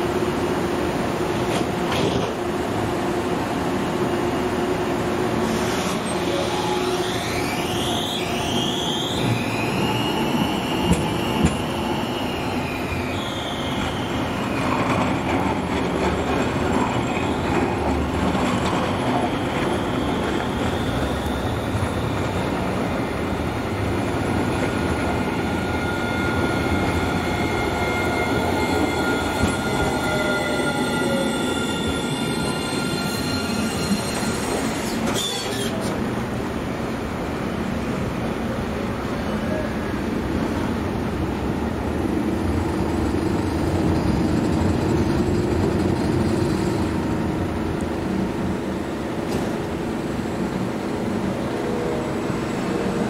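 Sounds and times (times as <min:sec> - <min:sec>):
tram high whine: 0:00.0 - 0:53.0
tram wheels squealing: 0:05.4 - 0:36.2, 0:42.5 - 0:47.4.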